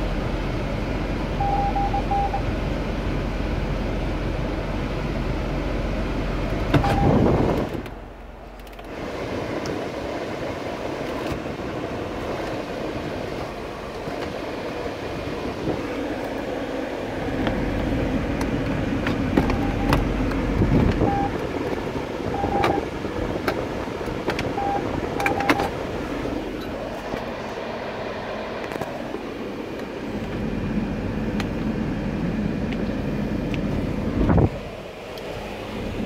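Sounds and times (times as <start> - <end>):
short beeps: 1.4 - 2.4, 6.8 - 7.2, 19.5 - 20.0, 21.0 - 21.3, 22.3 - 22.8, 24.6 - 25.7
blower fan rushing: 2.4 - 36.0
switches and buttons clicking: 24.2 - 25.7.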